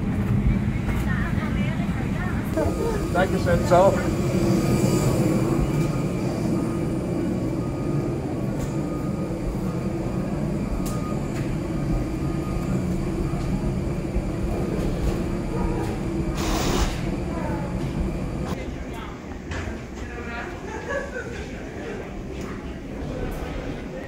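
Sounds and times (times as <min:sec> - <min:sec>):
low mechanical drone: 0:00.0 - 0:20.0.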